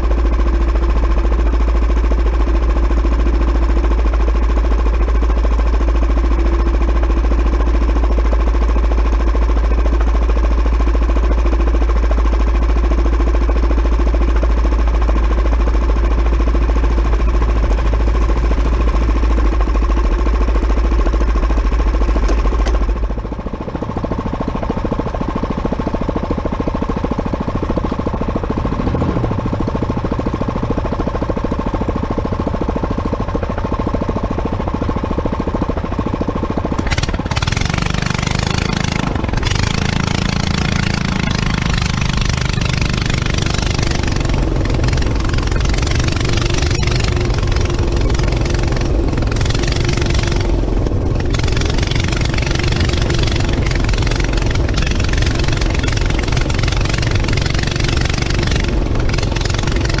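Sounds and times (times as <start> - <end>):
go-kart engine idling and revving: 0.0 - 60.0
wind and road noise: 22.0 - 42.3, 42.9 - 60.0.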